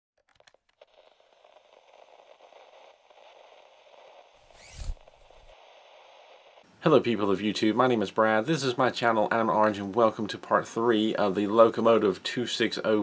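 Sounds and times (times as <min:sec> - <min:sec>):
low crackling static: 0:00.2 - 0:13.0
whoosh: 0:02.2 - 0:06.6.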